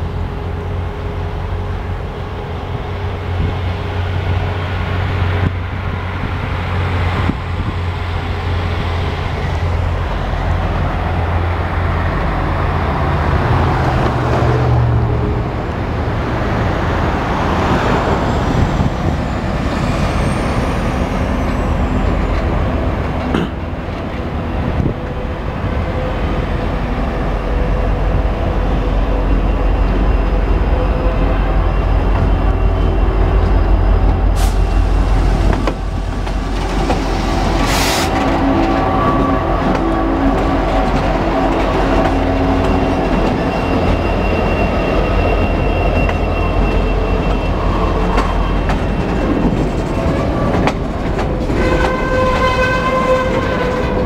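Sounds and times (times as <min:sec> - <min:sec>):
diesel locomotive engine rumbling: 0:00.0 - 0:54.0
faint high squealing glides: 0:17.5 - 0:22.9, 0:25.7 - 0:50.7
road traffic passing: 0:34.1 - 0:54.0.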